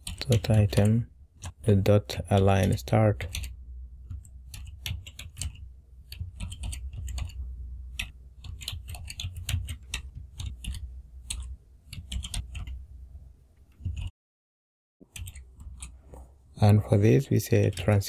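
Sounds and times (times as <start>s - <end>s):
typing on computer keyboard: 0.0s - 1.6s, 2.3s - 12.8s, 13.7s - 14.1s, 15.1s - 15.9s
steady low hum: 0.0s - 14.1s.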